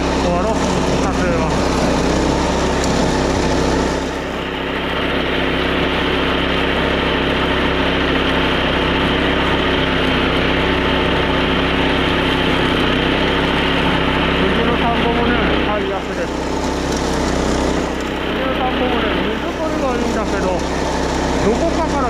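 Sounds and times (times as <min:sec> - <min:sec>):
small petrol engine running: 0:00.0 - 0:22.0.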